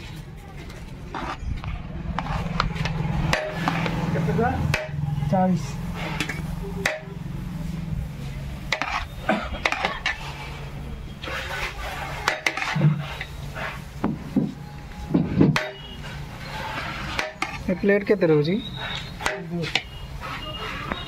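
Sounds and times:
dishes and utensils clinking: 2.3s - 5.0s, 6.0s - 7.2s, 8.7s - 10.4s, 11.2s - 13.4s, 14.0s - 17.9s.

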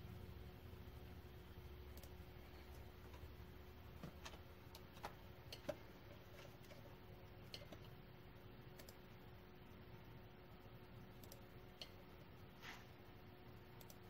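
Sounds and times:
faint steady hum: 0.0s - 14.0s
computer mouse clicks: 1.9s - 2.2s, 8.7s - 9.0s, 11.2s - 12.0s, 13.8s - 14.0s.

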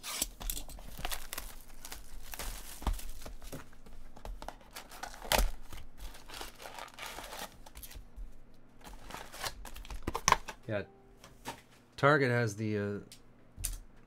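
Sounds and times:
plastic wrap crinkling and tearing: 0.0s - 8.0s, 8.8s - 10.6s
foil packs rustling: 0.3s - 8.0s, 8.8s - 10.6s.

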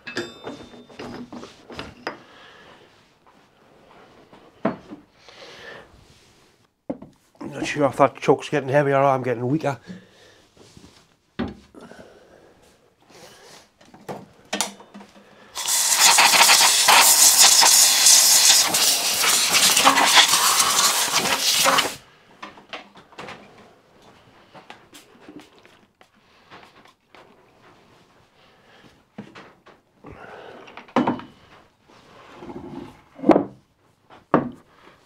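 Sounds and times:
faint clinks and knocks: 0.0s - 2.2s
air blow gun hissing: 15.6s - 22.0s.

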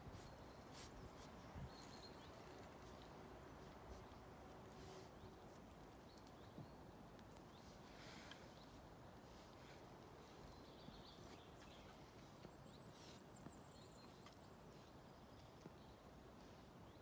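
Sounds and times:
faint high chirp: 0.1s - 2.7s
faint clicks of rooting in soil: 0.1s - 16.5s.

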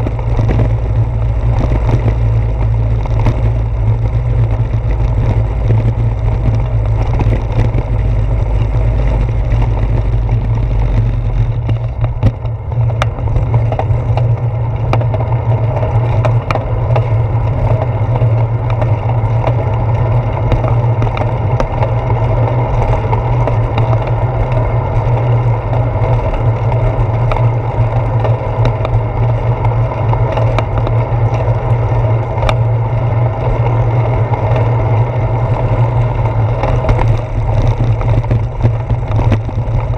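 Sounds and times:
bicycle road rumble: 0.0s - 39.9s
small knocks and rattles: 35.8s - 39.9s.

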